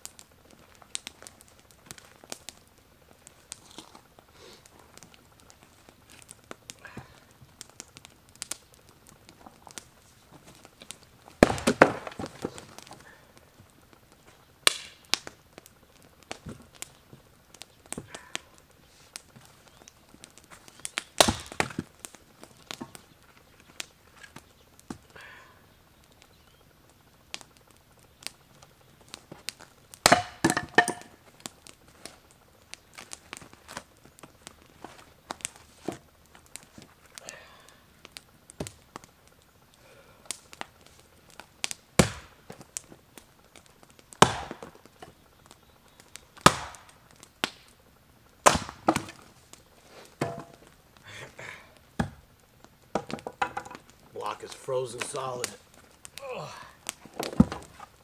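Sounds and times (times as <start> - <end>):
knocks of wood pieces handled: 9.3 - 13.0, 19.1 - 23.0, 29.1 - 31.2, 48.4 - 49.4, 50.0 - 50.8, 52.9 - 54.0, 56.8 - 58.0
axe splitting firewood: 10.5 - 13.0, 14.6 - 15.3, 20.4 - 23.0, 29.3 - 32.1, 41.6 - 42.6, 44.2 - 45.2, 46.4 - 47.6, 48.4 - 50.8, 52.0 - 52.2, 52.9 - 53.9, 55.8 - 58.0.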